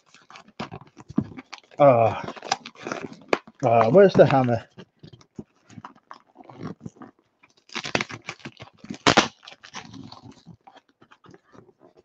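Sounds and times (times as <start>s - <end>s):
cardboard box being torn open: 0.1s - 4.7s, 7.7s - 10.5s.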